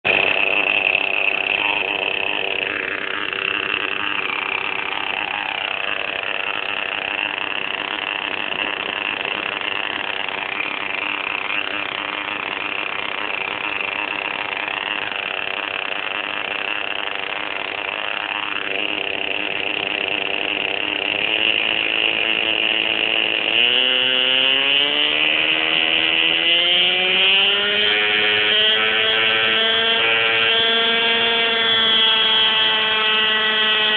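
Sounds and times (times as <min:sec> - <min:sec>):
model helicopter engine whining: 0:00.0 - 0:33.9.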